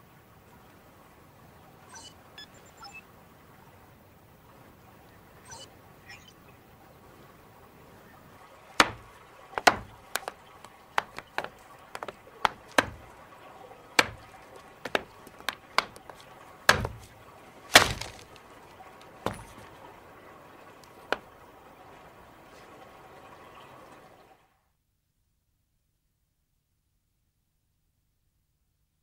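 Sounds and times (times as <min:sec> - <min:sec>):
stone tool knocking on bone: 0:08.8 - 0:10.4, 0:11.0 - 0:13.1, 0:14.0 - 0:14.3, 0:14.9 - 0:17.1.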